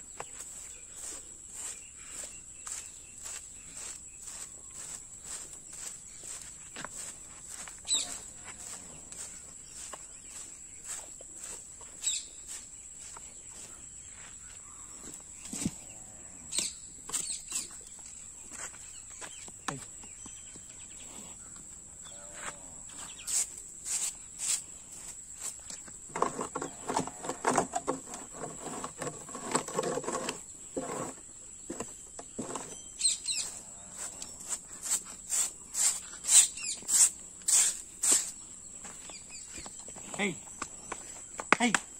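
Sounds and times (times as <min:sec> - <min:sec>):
flip-flop footsteps scuffing: 0:00.0 - 0:15.8, 0:16.5 - 0:20.8, 0:29.4 - 0:41.9
broom sweeping dirt floor: 0:00.0 - 0:40.4.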